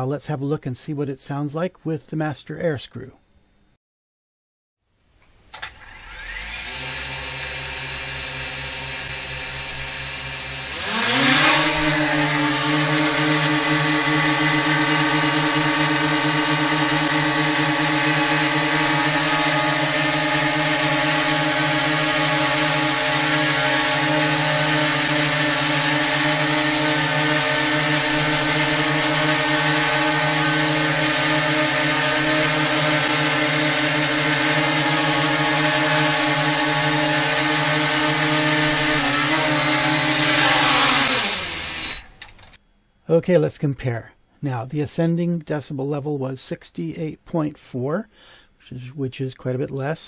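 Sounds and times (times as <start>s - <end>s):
drone motors humming: 7.2s - 42.3s.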